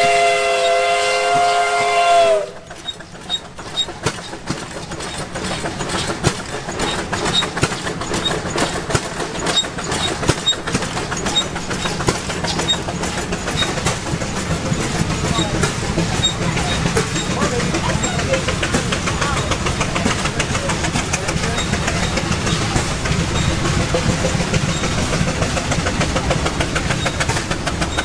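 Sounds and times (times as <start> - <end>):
steam whistle: 0.0 - 2.6
mechanical clattering and knocking: 2.6 - 28.0.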